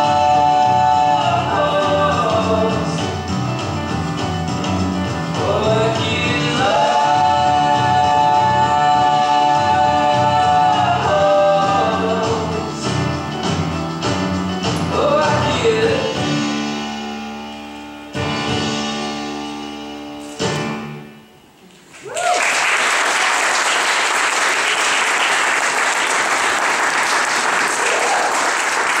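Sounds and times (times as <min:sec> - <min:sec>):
song with sung line: 0:00.0 - 0:17.3
audience applauding: 0:21.9 - 0:29.0.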